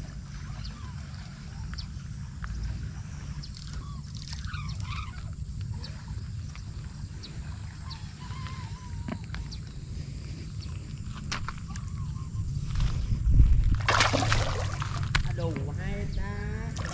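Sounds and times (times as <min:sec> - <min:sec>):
wind buffeting microphone: 0:04.9 - 0:16.9.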